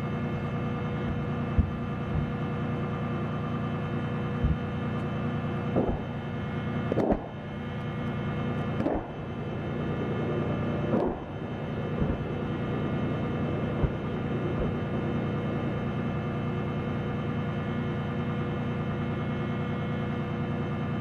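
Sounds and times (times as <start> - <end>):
steady engine drone: 0.0 - 21.0
explosions of rounds hitting ground: 5.7 - 6.3, 6.9 - 7.5, 8.8 - 9.3, 10.9 - 12.4.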